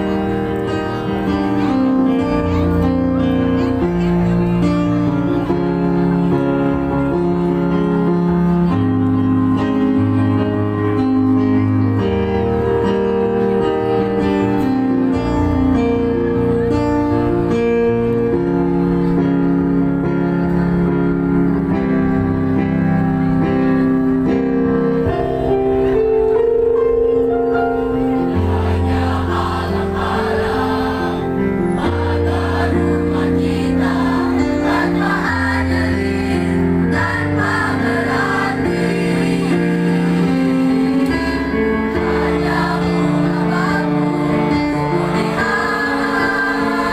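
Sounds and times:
choir singing in harmony: 28.0s - 46.9s.

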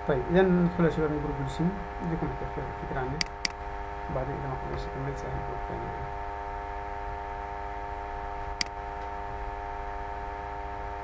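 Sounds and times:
electrical mains hum: 0.0s - 11.0s
mouse click: 8.6s - 9.1s.

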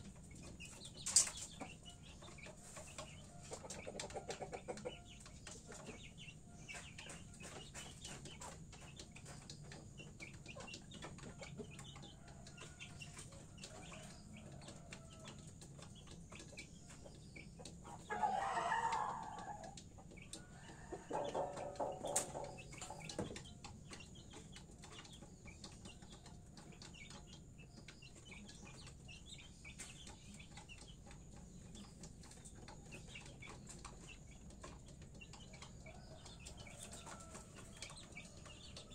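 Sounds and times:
chickens clucking: 0.0s - 38.9s
chicken squawk: 18.1s - 19.6s.

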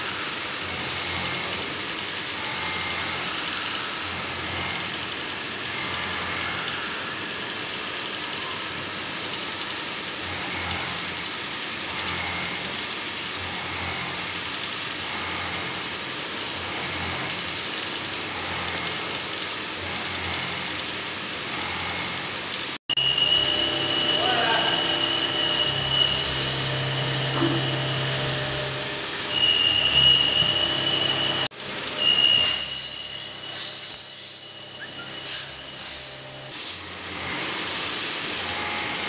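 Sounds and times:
machine shop hiss: 0.0s - 4.7s, 31.6s - 39.0s.

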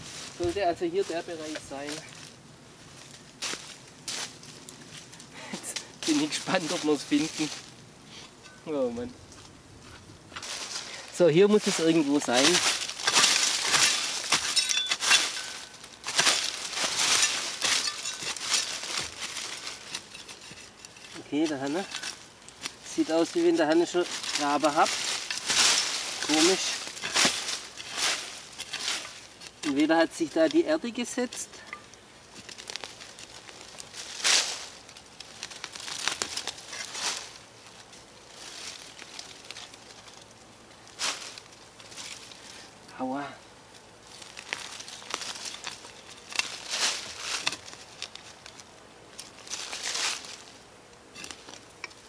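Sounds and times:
spade digging into leaves and soil: 10.3s - 40.2s, 44.1s - 50.5s, 51.1s - 52.0s.

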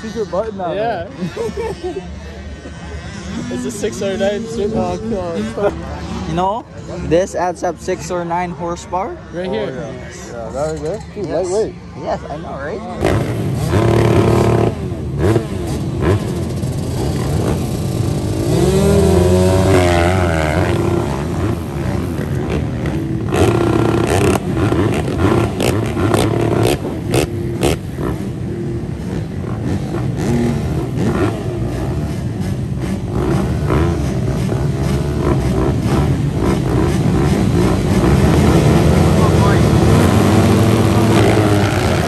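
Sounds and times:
motocross bikes idling and revving: 0.0s - 42.0s.

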